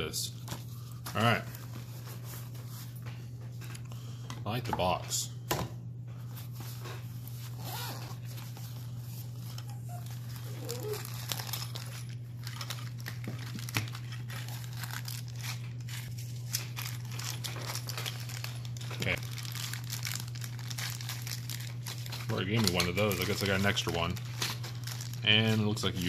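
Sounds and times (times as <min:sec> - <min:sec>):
steady low hum: 0:00.0 - 0:26.0
plastic wrapping crinkling: 0:06.5 - 0:26.0.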